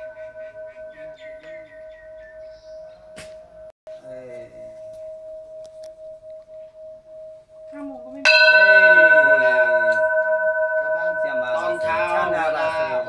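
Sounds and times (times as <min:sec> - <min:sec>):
metal bell ringing: 0:00.0 - 0:13.0
man talking: 0:04.0 - 0:04.7, 0:11.0 - 0:13.0.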